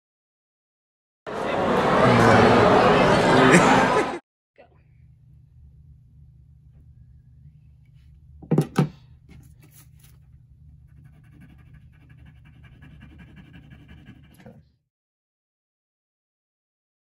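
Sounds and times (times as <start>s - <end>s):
low steady hum: 4.6s - 14.1s
pencil scratching on paper: 10.8s - 14.7s.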